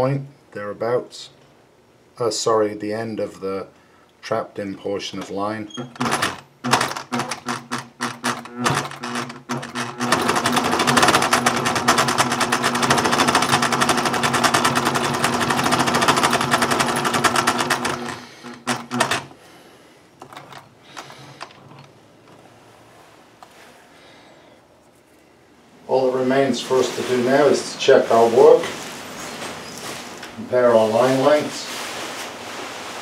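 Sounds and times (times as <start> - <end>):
sewing machine stitching: 5.7 - 19.4, 20.2 - 21.9
faint handling: 19.4 - 33.0.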